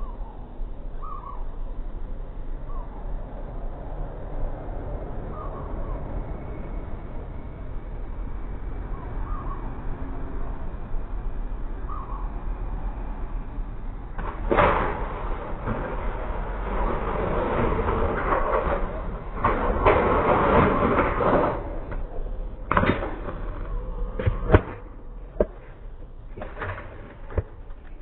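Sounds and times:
bike knocking and banging down: 14.1s - 28.0s
bike pegs grinding on metal rail: 14.2s - 28.0s.

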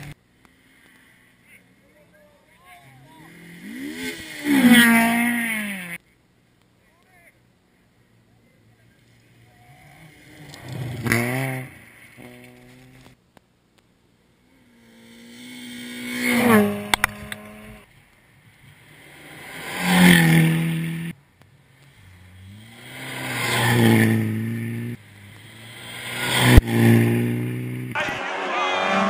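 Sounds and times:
rally cars passing at speed: 2.8s - 6.0s, 9.0s - 13.2s, 14.5s - 17.9s, 18.5s - 21.2s, 21.8s - 29.0s.

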